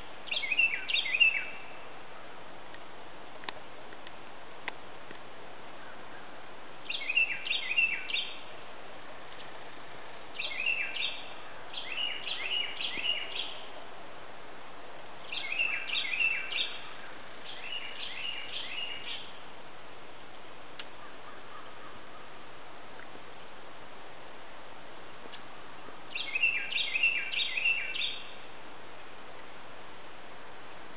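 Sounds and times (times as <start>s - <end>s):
bird singing whistles: 0.3s - 1.6s, 6.9s - 8.4s, 10.4s - 11.2s, 11.8s - 13.6s, 15.3s - 16.8s, 17.5s - 19.2s, 26.2s - 28.3s.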